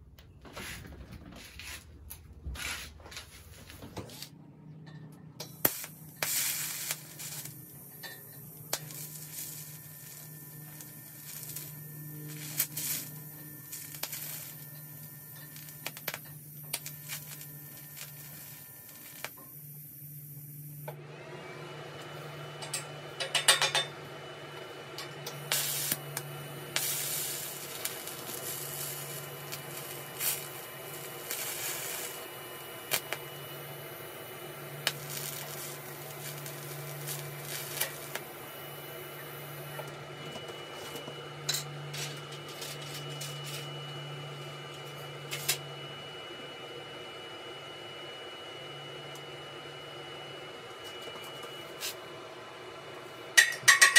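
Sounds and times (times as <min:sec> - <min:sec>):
welding arc buzzing and crackling: 0:05.4 - 0:21.0, 0:24.6 - 0:45.7.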